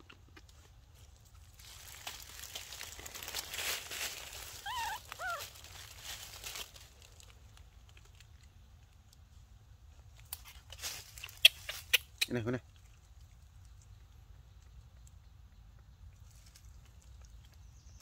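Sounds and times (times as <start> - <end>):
banana peel crinkling and tearing: 0.0 - 9.2
baby monkey squeaky calls: 4.5 - 5.6, 11.2 - 12.2.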